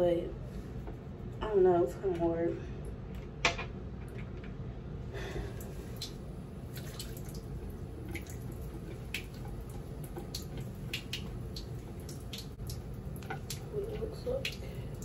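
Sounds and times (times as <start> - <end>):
water splashing on face: 5.5 - 15.0
tap water running into sink: 6.0 - 15.0.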